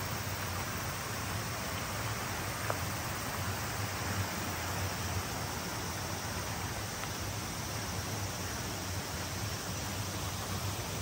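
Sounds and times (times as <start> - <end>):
mountain stream rushing water: 0.0 - 11.0.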